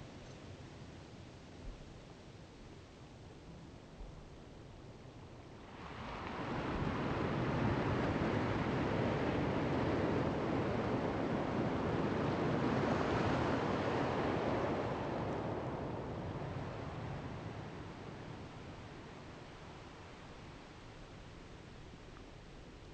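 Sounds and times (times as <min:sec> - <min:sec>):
wind: 0:00.0 - 0:22.9
open water rushing: 0:05.7 - 0:20.3.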